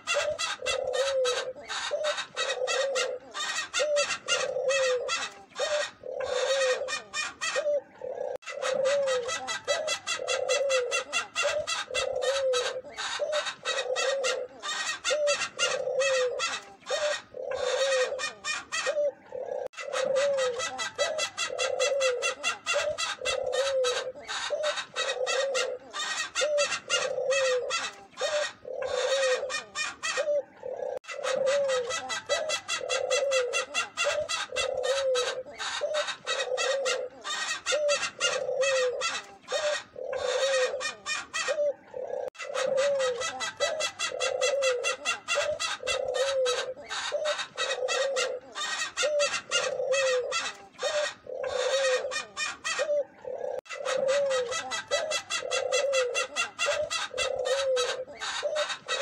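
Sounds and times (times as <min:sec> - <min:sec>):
doves cooing: 0:00.0 - 0:59.0.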